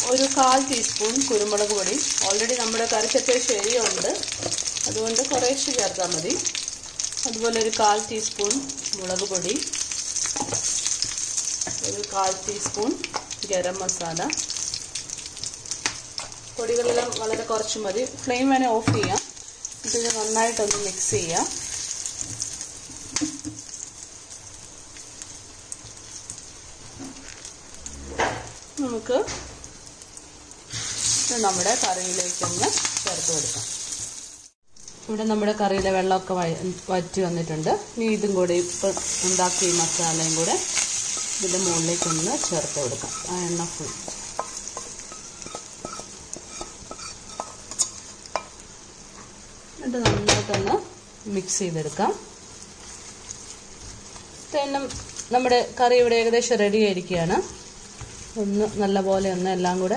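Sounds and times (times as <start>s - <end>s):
oil popping and crackling: 0.0s - 18.2s, 28.5s - 35.1s
oil sizzling in a pan: 0.0s - 59.9s
small crackles: 52.4s - 55.4s.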